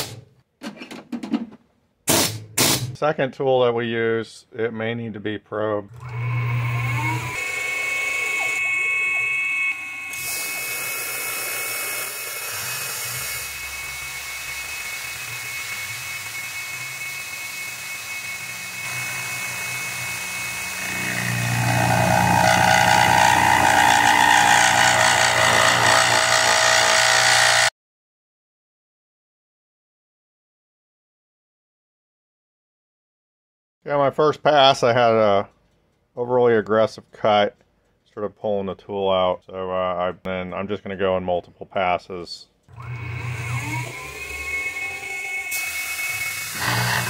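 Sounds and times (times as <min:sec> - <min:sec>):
man talking: 0:03.0 - 0:05.9, 0:33.9 - 0:35.5, 0:36.2 - 0:42.6
end mill cutting aluminium: 0:06.0 - 0:27.7, 0:42.7 - 0:47.0
milling machine spindle whining: 0:06.0 - 0:27.7, 0:42.7 - 0:47.0.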